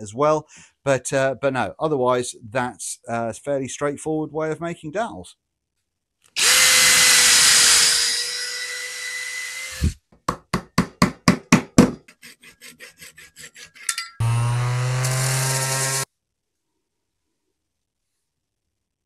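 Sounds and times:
cordless drill boring through wood: 0:06.4 - 0:10.0, 0:14.2 - 0:16.1
dowel being hammered in: 0:10.3 - 0:12.1
orbital sander running: 0:14.2 - 0:16.1.

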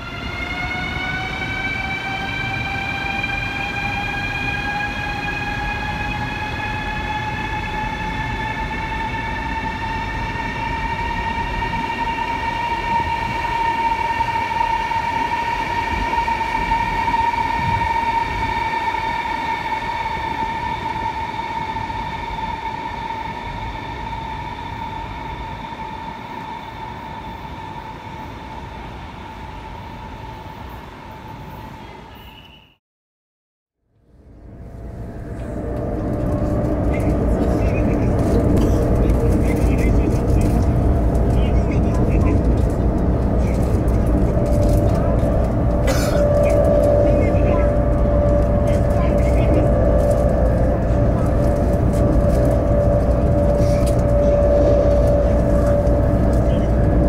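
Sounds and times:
low rumble of train running gear: 0:00.0 - 0:32.2, 0:33.9 - 0:57.0
train motor whine rising: 0:34.0 - 0:57.0.

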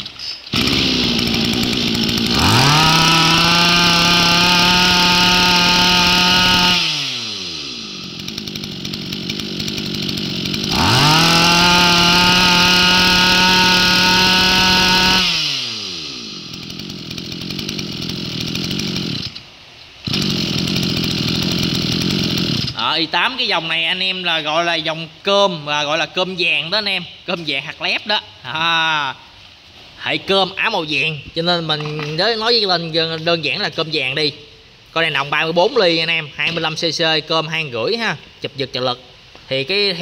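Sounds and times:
brush cutter engine revving: 0:00.0 - 0:22.9.

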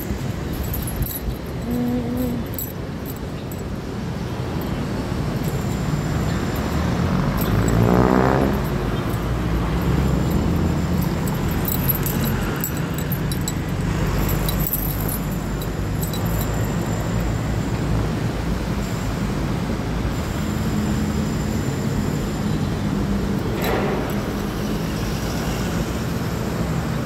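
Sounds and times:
low rumble of passing cars: 0:00.0 - 0:27.0
car engine revving: 0:06.9 - 0:12.6.

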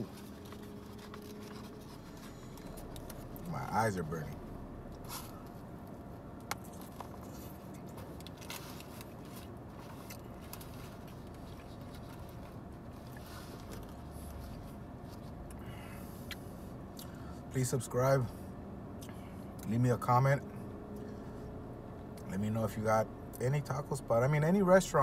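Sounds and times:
foil wrapper rustling: 0:00.0 - 0:03.4, 0:08.0 - 0:14.7
car cabin hum: 0:00.0 - 0:18.3.

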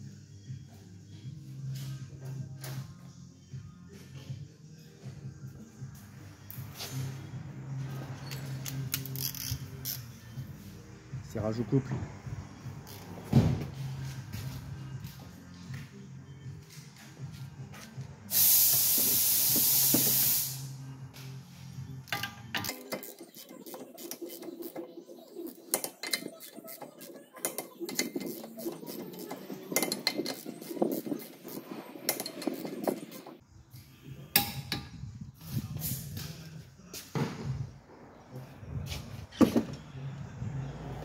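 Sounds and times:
compressed air hiss: 0:18.3 - 0:20.8.

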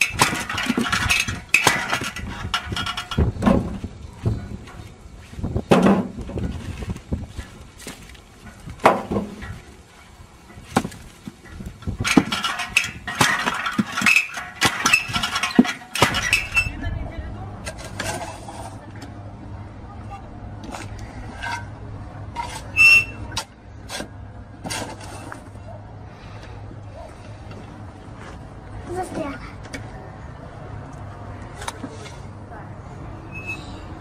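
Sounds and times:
blade chopping logs: 0:00.0 - 0:02.3, 0:10.7 - 0:11.4
split wood clattering: 0:00.0 - 0:03.8, 0:10.5 - 0:16.6.

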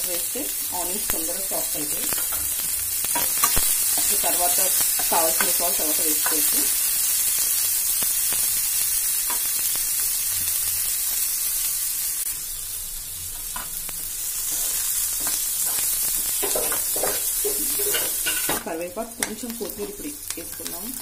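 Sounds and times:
onions sizzling in hot oil: 0:00.0 - 0:21.0
ladle scraping pan: 0:14.5 - 0:18.6.

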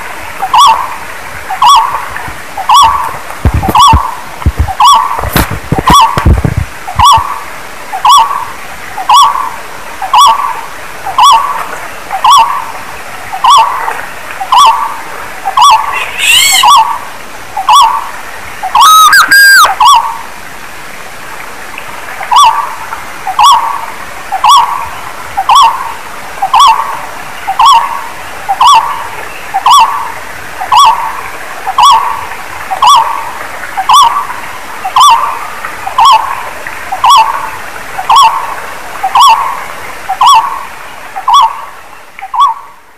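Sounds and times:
rising whistle-like bird call: 0:15.6 - 0:17.0, 0:18.8 - 0:20.1.

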